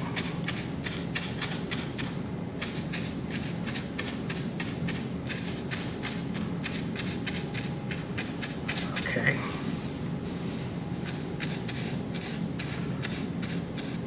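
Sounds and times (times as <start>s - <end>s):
paintbrush scratchy strokes: 9.6s - 14.0s.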